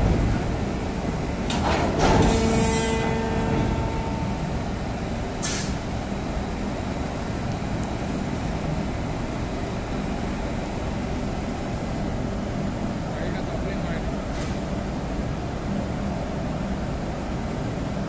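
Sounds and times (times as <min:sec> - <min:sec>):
low mechanical rumble: 0:00.0 - 0:18.0
short hiss: 0:05.4 - 0:05.8.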